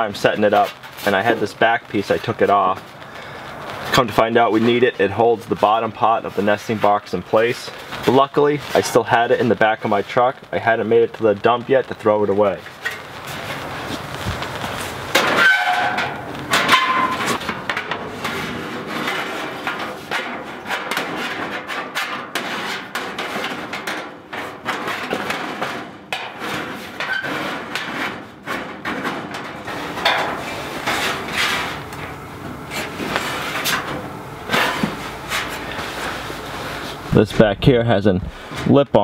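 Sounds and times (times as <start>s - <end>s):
sheet metal clanking and scraping: 12.6s - 37.6s.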